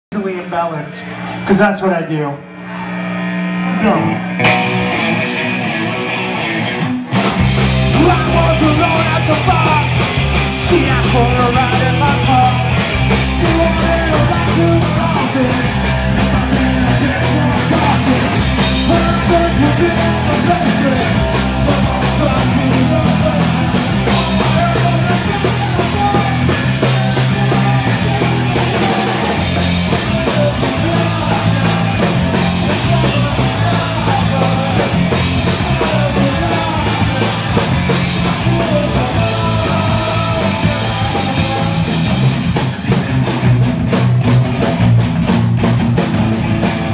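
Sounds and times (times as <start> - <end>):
electric guitar: 2.4 - 46.9
drum kit: 2.5 - 46.9
person singing: 7.9 - 42.4.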